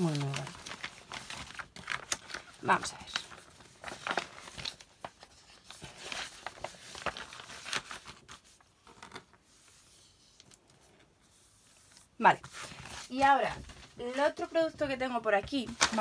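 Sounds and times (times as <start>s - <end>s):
plastic packaging crinkling: 0.0s - 9.3s.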